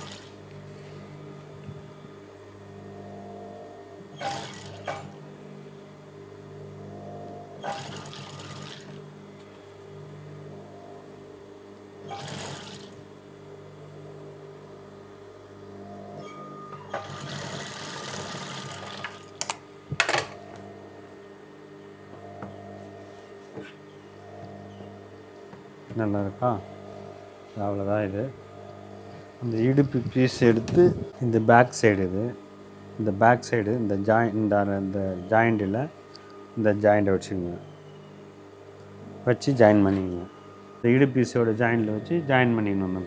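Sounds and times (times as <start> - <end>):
sewing machine stitching: 0.0 - 0.4, 4.2 - 5.2, 7.6 - 9.0, 12.1 - 13.0, 16.9 - 19.2
sewing machine motor hum: 0.0 - 2.0, 2.9 - 5.3, 6.9 - 11.0, 12.0 - 13.1, 16.8 - 20.7.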